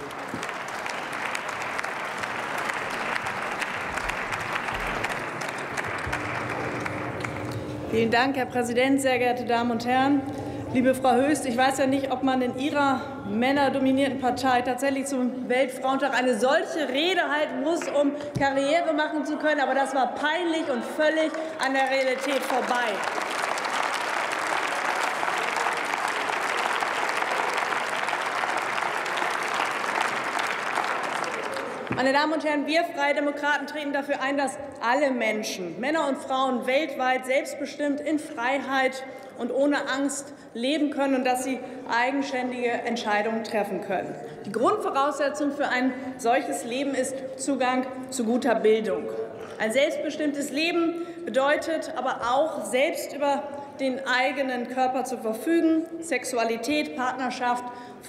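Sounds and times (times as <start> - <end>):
crowd applauding: 0.0 - 7.9, 21.3 - 32.0
people clapping: 0.0 - 7.9, 21.1 - 32.1.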